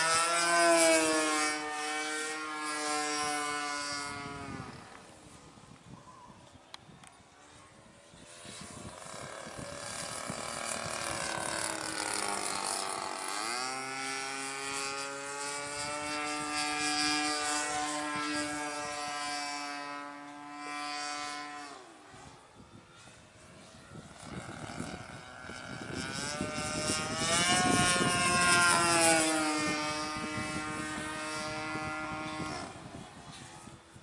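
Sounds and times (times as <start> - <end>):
model plane engine drone: 0.0 - 34.0.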